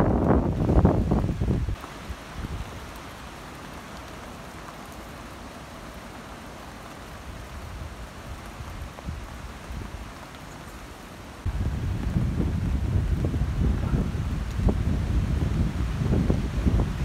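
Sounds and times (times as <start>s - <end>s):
wind rumble on microphone: 0.0s - 2.9s, 7.2s - 10.2s, 11.4s - 17.0s
steady rain: 0.0s - 17.0s.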